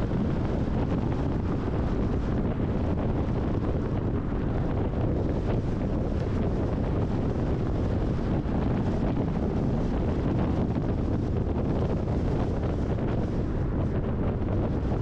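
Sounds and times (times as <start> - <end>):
car wind rush and tyre noise: 0.0 - 15.0
wind buffeting microphone: 0.0 - 15.0.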